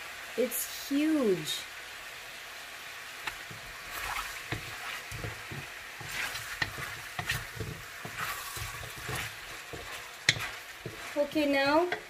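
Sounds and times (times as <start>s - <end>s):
chicken sizzling in pot: 0.0s - 12.0s
utensil scraping pan: 3.5s - 12.0s.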